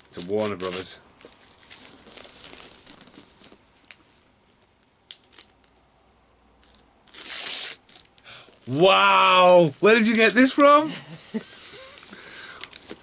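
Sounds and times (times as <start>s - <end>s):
gift wrap paper crinkling: 0.0s - 5.8s, 6.6s - 13.0s
paper ripping: 0.2s - 0.9s, 6.6s - 8.1s.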